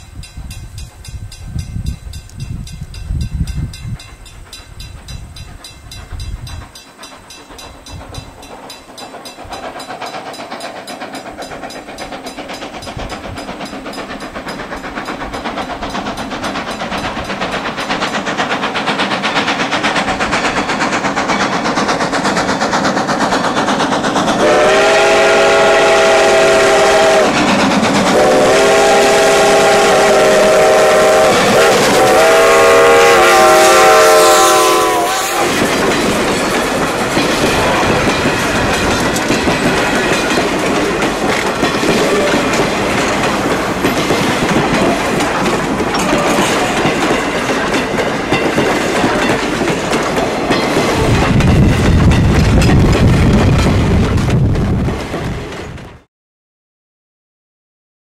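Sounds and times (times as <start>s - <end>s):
train wheels clacking on rails: 0.0s - 56.1s
steam locomotive chime whistle: 24.4s - 41.2s.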